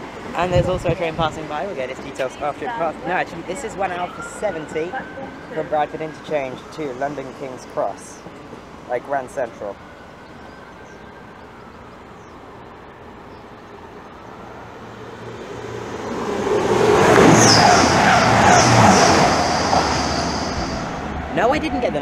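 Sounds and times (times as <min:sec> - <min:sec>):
wheels rushing on rails: 0:00.0 - 0:22.0
train passing at speed: 0:13.7 - 0:22.0.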